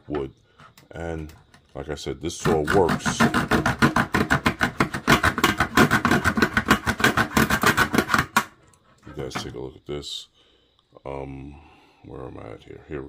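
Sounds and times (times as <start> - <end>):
saw cutting wooden stick: 2.4 - 8.5.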